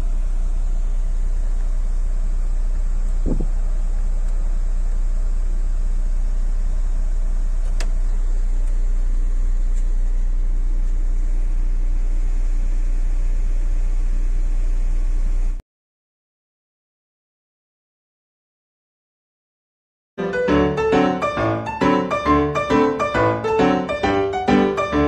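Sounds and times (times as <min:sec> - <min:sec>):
bus engine rumble inside cabin: 0:00.0 - 0:15.6.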